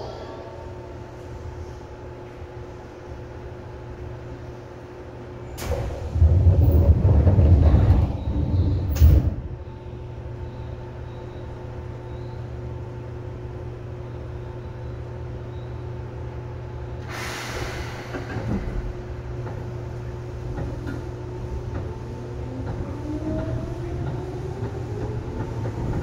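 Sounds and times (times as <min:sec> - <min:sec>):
electric train equipment hum: 0:00.0 - 0:26.0
compressed-air hiss: 0:17.1 - 0:18.2.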